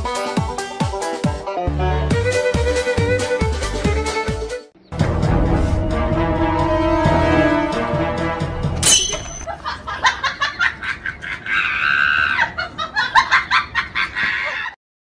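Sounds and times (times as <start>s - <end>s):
person laughing: 9.4s - 14.8s.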